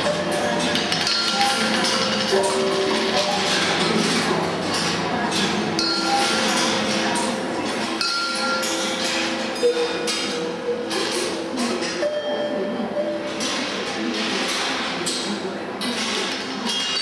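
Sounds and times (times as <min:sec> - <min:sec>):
balls rolling and clinking on tracks: 0:00.0 - 0:11.1.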